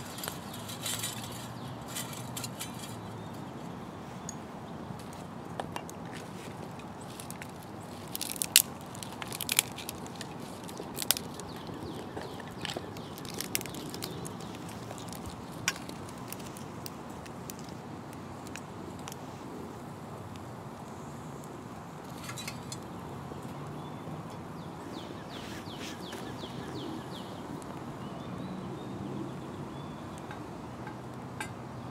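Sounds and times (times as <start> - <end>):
fire popping and snapping: 0.0 - 3.5, 5.0 - 19.8
pine needles and twigs crackling: 0.0 - 23.9.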